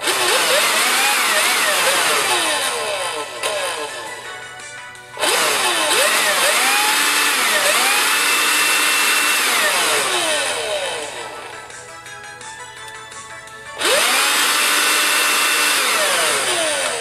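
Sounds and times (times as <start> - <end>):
vacuum motor whine with rushing air: 0.0 - 4.3, 5.1 - 11.6, 13.8 - 17.0.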